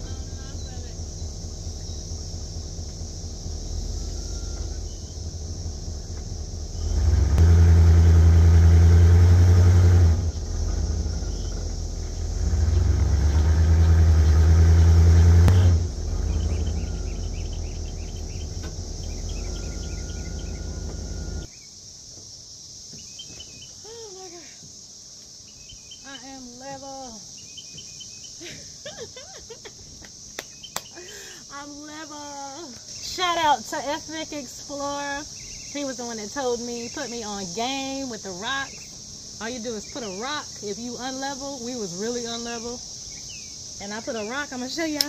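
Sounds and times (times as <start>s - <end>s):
birds chirping: 0.0s - 7.4s, 10.2s - 45.0s
bus engine idling and revving: 0.0s - 21.5s
insects chirping: 0.0s - 45.0s.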